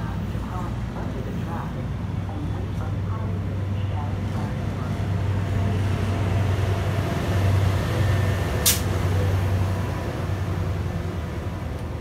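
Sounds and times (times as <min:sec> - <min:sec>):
train rolling past: 0:00.0 - 0:12.0
sharp hiss of air: 0:08.6 - 0:08.9.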